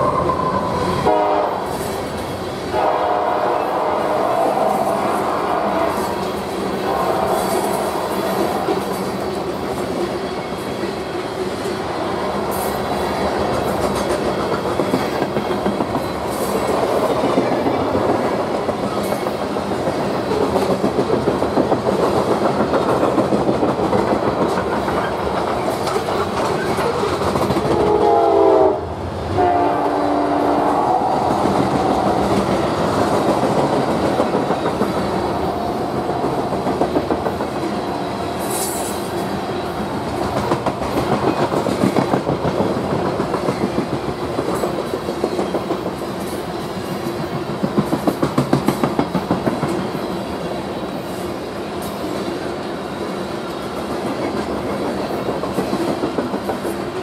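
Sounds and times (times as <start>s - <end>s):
train wheels clickety-clack: 0.0s - 28.4s, 31.1s - 57.0s
train horn chord: 1.0s - 1.7s, 2.7s - 6.2s, 6.8s - 8.7s, 27.8s - 31.4s.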